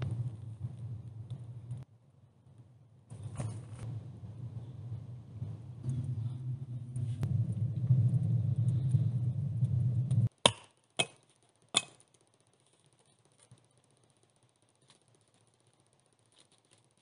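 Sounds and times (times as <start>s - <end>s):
low steady rumble: 0.0s - 17.0s
axe striking wood: 10.4s - 11.2s.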